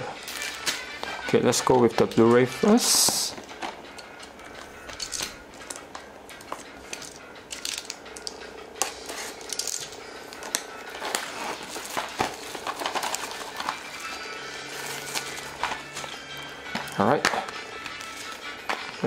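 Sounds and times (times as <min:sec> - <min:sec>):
cellophane crinkling: 0:09.0 - 0:18.8.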